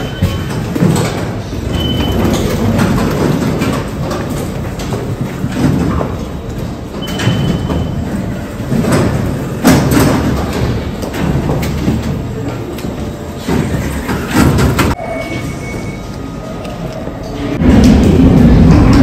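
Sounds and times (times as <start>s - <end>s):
turnstile clunks: 0.0s - 15.0s
rumble and shuffle of passengers: 0.0s - 19.0s.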